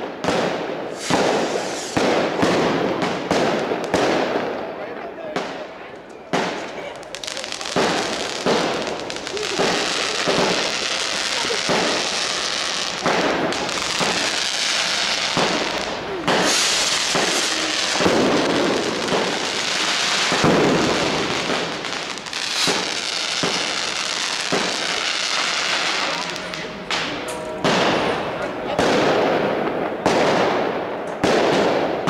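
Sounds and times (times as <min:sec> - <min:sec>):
continuous crackle of fireworks: 0:00.0 - 0:32.0
firecrackers and rockets banging: 0:00.0 - 0:32.0.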